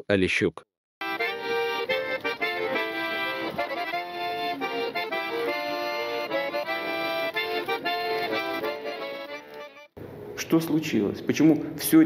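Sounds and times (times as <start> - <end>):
accordions playing: 1.0 - 10.0.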